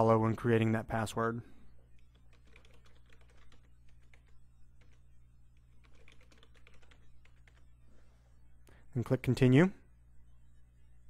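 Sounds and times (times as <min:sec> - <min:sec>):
low steady hum: 0:00.0 - 0:11.0
keyboard typing clicks: 0:01.9 - 0:05.0, 0:05.6 - 0:07.6.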